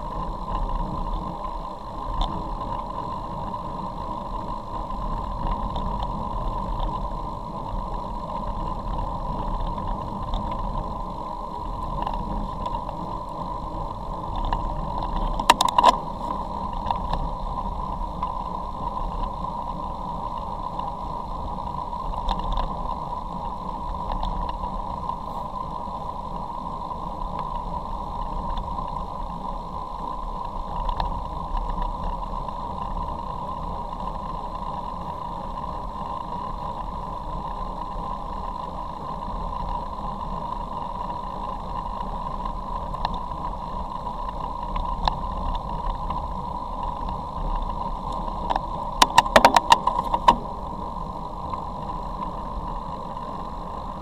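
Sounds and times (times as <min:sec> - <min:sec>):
bicycle tyre noise on wet road: 0:00.0 - 0:54.0.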